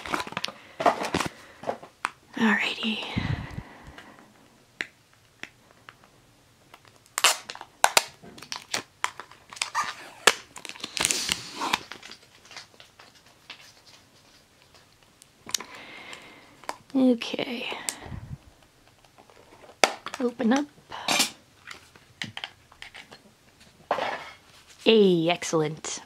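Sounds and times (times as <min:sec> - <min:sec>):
cards rustling and clicking: 0:00.0 - 0:02.2, 0:06.7 - 0:15.6
foil wrapper crinkling: 0:00.0 - 0:02.2, 0:06.7 - 0:15.6.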